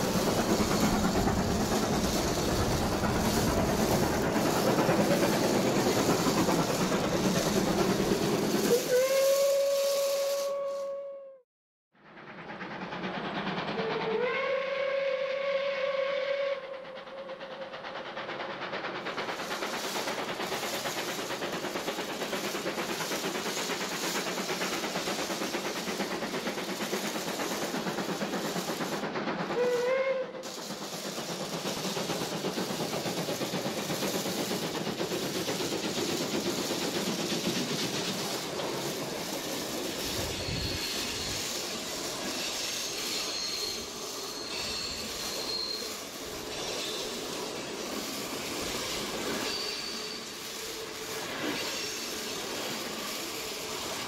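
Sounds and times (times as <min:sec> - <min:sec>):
steam train rushing noise: 0:00.0 - 0:11.2, 0:12.0 - 0:54.0
steam locomotive whistle: 0:08.6 - 0:11.4, 0:13.8 - 0:17.3, 0:29.5 - 0:30.5, 0:42.4 - 0:47.0.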